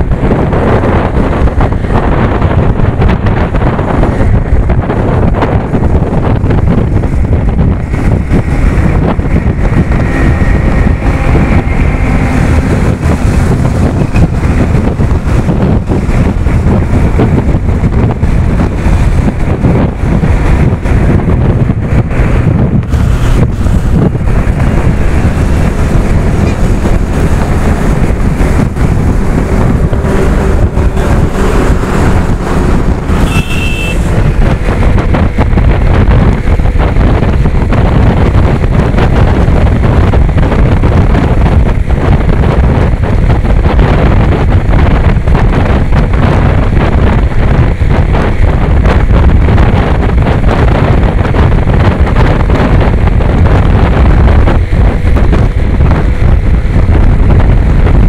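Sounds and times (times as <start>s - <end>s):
motorcycle road noise: 0.0s - 58.0s
wind buffeting microphone: 0.0s - 58.0s
short high beep: 33.2s - 34.1s.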